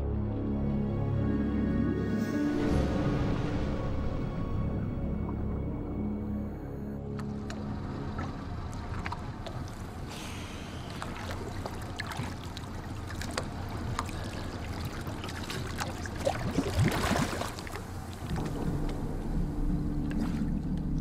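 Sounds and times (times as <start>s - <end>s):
low droning background music: 0.0s - 21.0s
sea water sloshing and splashing: 7.0s - 21.0s
rush of splashing and bubbles: 7.2s - 21.0s.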